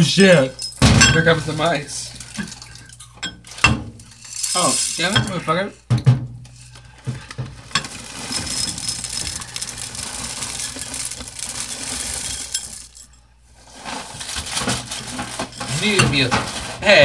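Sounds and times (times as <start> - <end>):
plastic bag crinkling: 0.0 - 5.7, 6.5 - 16.9
cereal pouring: 4.0 - 5.6, 6.5 - 16.6.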